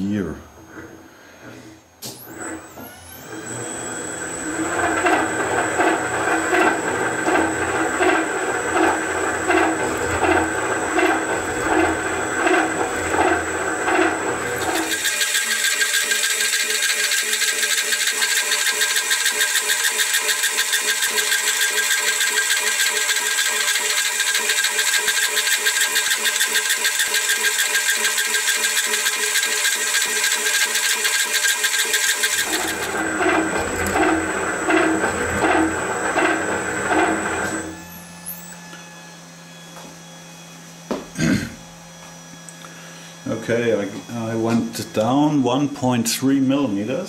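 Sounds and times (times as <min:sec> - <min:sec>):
metal shaper cutting metal: 0:04.4 - 0:38.6.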